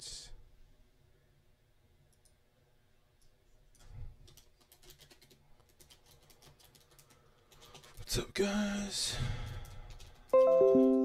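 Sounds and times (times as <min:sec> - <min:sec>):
typing on computer keyboard: 0:04.2 - 0:08.1, 0:09.3 - 0:11.0.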